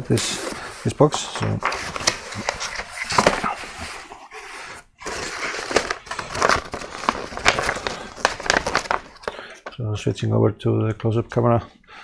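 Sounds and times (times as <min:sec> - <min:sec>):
cardboard and paper rustling: 0:00.0 - 0:09.4.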